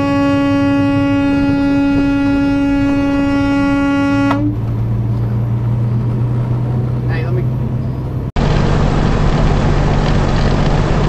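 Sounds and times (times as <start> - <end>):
truck air horn blast: 0.0 - 4.6
truck engine drone: 0.0 - 11.0.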